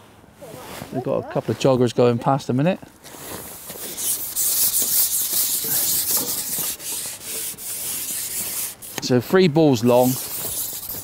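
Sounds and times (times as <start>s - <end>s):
fishing pole scraping: 3.2s - 9.2s, 9.8s - 11.0s.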